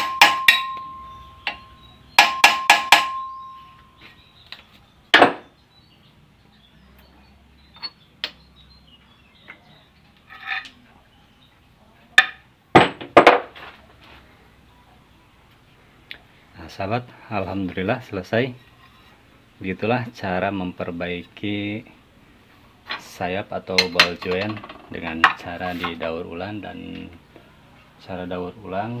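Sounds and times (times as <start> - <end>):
hammer striking steel: 0.0 - 3.8
metal clinks: 0.0 - 4.0.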